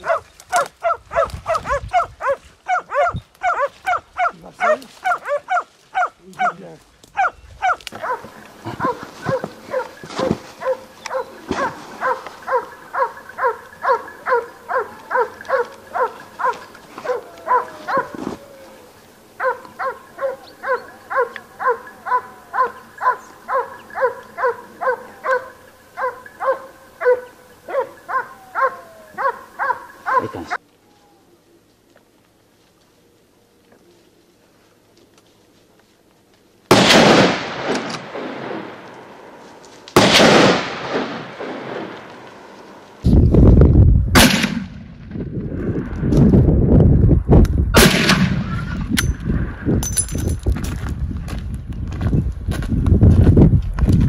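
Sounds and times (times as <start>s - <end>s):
hound barking: 0.0s - 30.6s.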